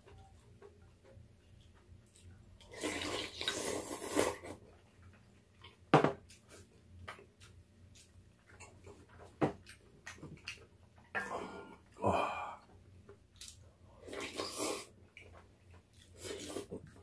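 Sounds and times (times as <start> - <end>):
person slurping noodles: 2.7 - 4.6, 14.0 - 14.9.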